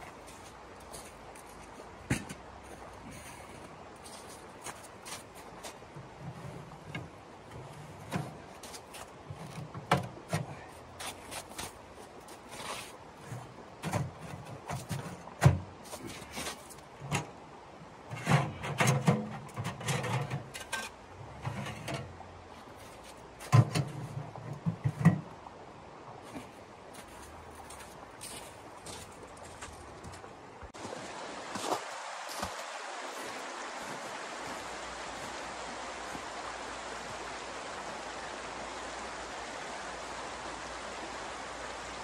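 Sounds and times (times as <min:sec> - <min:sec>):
metal clanks and scrapes: 0:18.1 - 0:22.2, 0:22.8 - 0:25.3.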